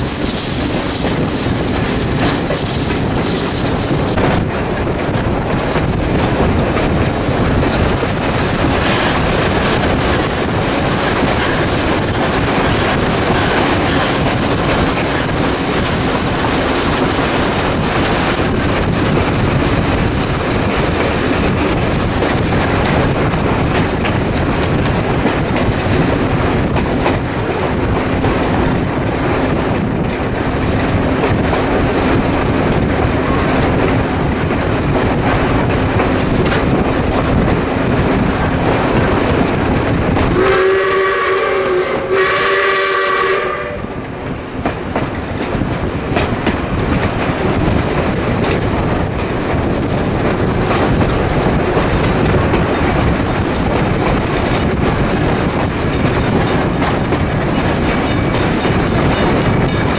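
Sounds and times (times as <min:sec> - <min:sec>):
steam whistle blasts: 0:15.6 - 0:17.0, 0:40.4 - 0:44.0
steam locomotive exhaust chuffing: 0:36.0 - 0:44.1.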